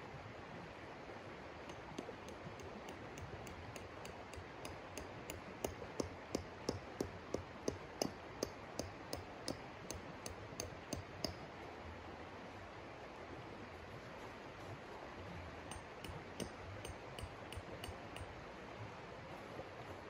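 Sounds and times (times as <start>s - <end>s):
sharp metallic taps ringing: 1.7s - 11.4s, 15.7s - 18.3s.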